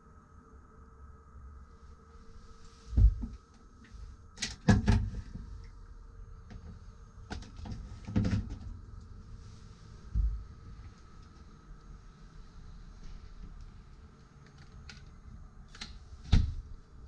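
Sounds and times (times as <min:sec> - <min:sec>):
low thump: 0:02.9 - 0:03.4.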